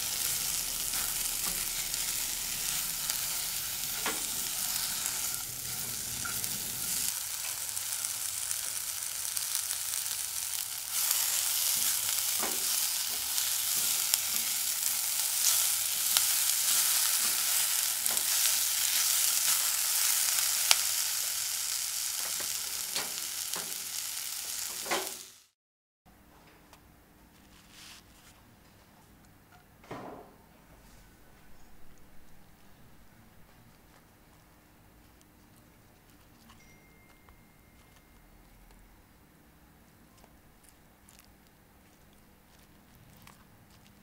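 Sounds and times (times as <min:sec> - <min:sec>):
spatula stirring food: 0:00.0 - 0:21.3
food sizzling in oil: 0:00.0 - 0:25.6.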